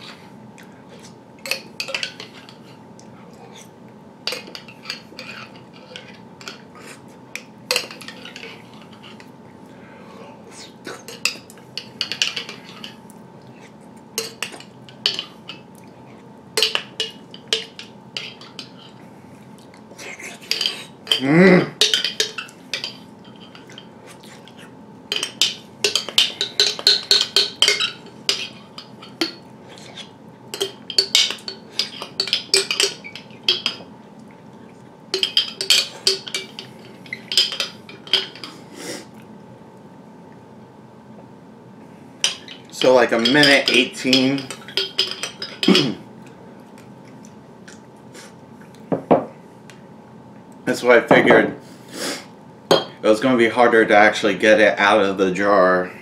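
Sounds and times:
spoon scraping glass jar: 24.4 - 33.8.

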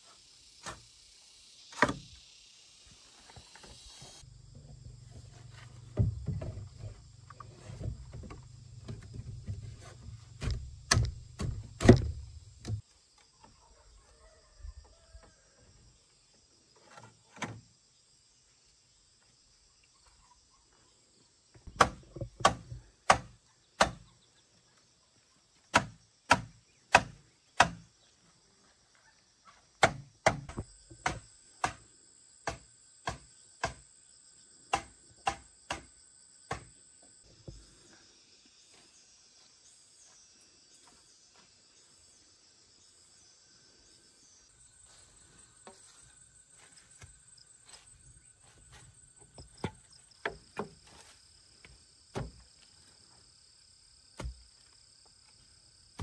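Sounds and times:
sharp knocks on bamboo: 1.7 - 2.1, 10.4 - 12.8, 21.7 - 24.1, 25.7 - 27.9, 29.8 - 31.8, 32.4 - 33.9, 34.7 - 35.9, 36.5 - 36.7, 49.6 - 50.8, 52.1 - 52.4, 54.2 - 54.5.

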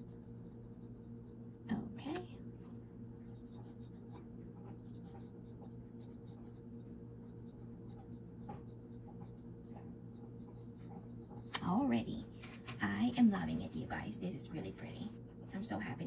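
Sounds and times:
pen nib scratching on paper: 0.0 - 2.2, 3.2 - 12.0.

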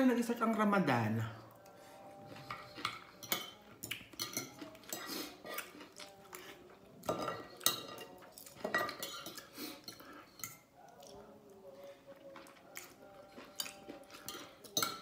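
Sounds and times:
cutlery clinking on a plate: 2.4 - 10.6, 12.8 - 15.0.

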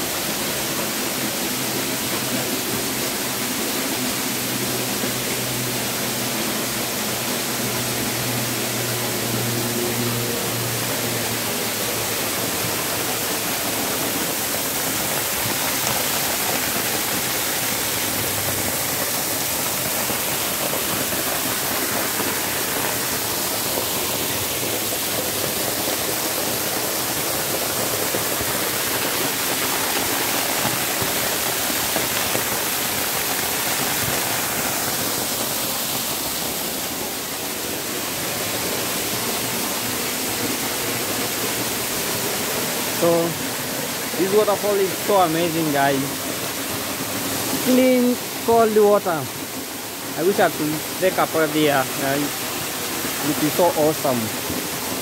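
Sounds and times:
waterfall falling onto rock: 11.7 - 55.0.

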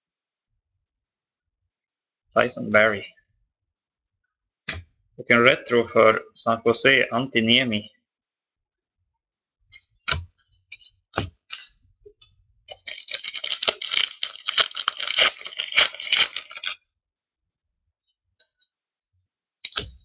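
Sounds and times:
wrapper tearing and crinkling: 12.7 - 16.8.

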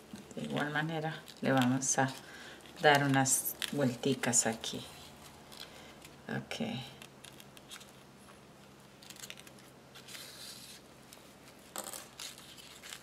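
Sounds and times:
faint rustling of ribbon and thread: 0.0 - 13.0.

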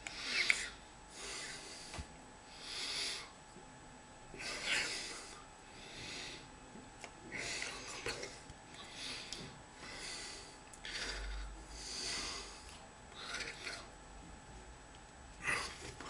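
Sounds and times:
man breathing through nose: 0.0 - 3.4, 4.4 - 6.5, 8.8 - 13.9.

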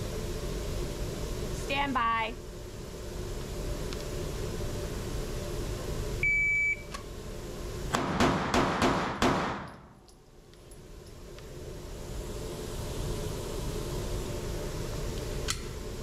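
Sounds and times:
shot timer beep: 6.2 - 6.9
pistol shots echoing indoors: 7.9 - 9.9.

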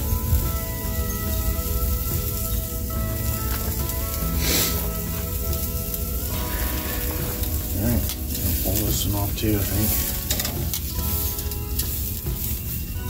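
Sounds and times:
steak sizzling on grill: 0.0 - 13.0
metal tongs handling meat: 7.1 - 12.7.

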